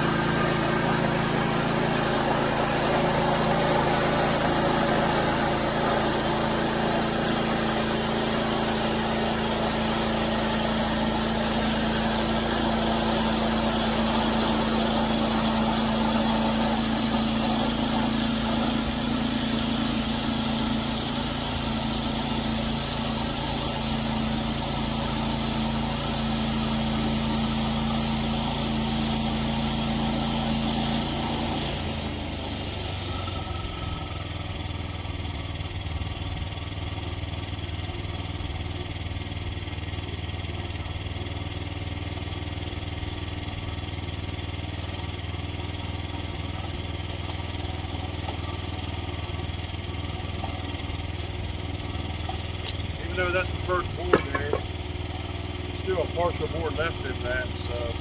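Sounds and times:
band blade cutting log: 0.0 - 33.0, 50.1 - 57.8
sawmill engine running: 0.0 - 58.0.

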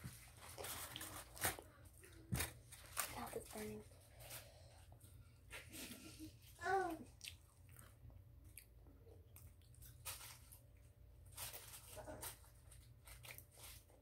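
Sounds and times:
person chewing: 7.1 - 10.9.

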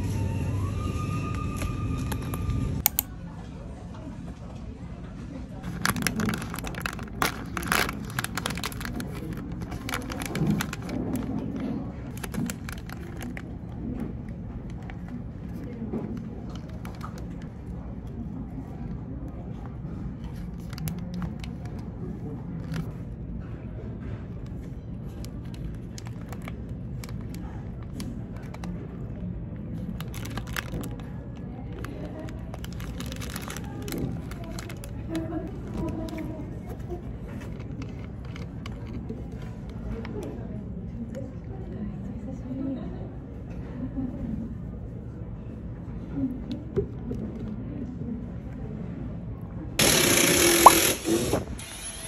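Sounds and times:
low background hum: 0.0 - 52.0
plastic wrapper crinkling: 5.6 - 18.2, 20.2 - 23.0, 25.1 - 40.3.

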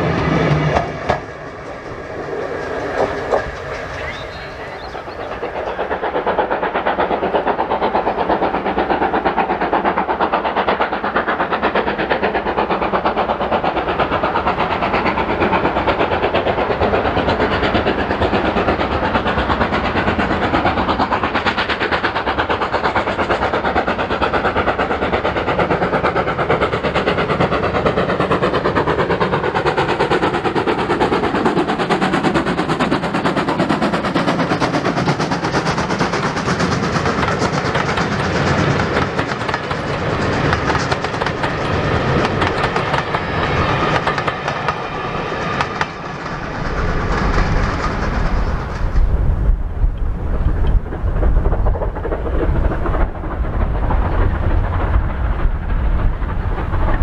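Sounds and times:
steam locomotive exhaust beating: 0.0 - 57.0.

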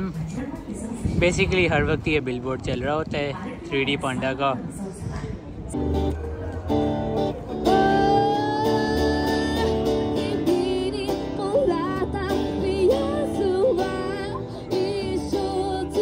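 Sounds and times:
acoustic guitar: 5.7 - 16.0
woman singing into microphone: 7.6 - 16.0.

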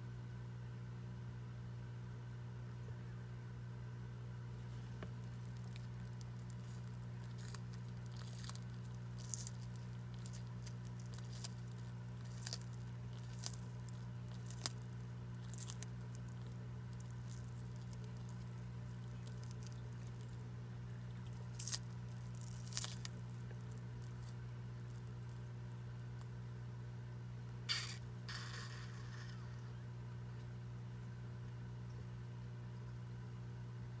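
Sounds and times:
steady low hum: 0.0 - 34.0
tortoise crunching leaves: 4.6 - 26.3.

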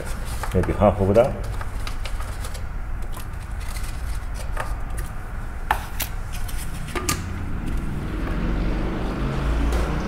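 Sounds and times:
steady low rumble: 5.2 - 10.0.

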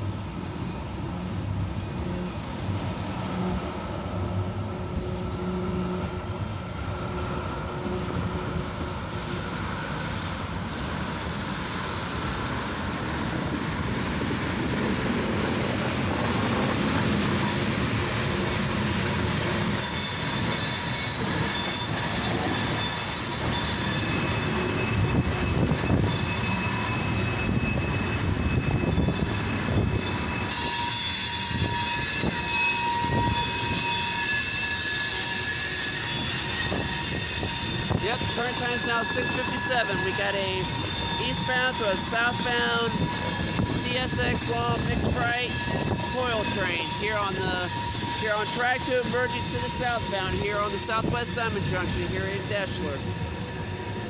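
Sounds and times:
train wheels rumbling on rail: 0.0 - 54.0
high-pitched wheel squeal: 14.8 - 54.0.

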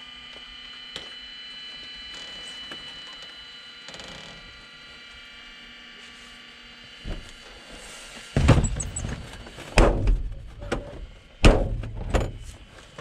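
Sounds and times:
loud heavy thumps: 8.4 - 10.6, 11.4 - 12.4.

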